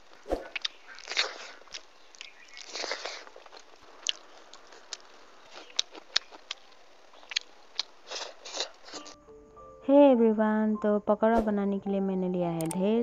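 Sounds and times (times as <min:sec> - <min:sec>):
person chewing food: 0:00.5 - 0:09.2.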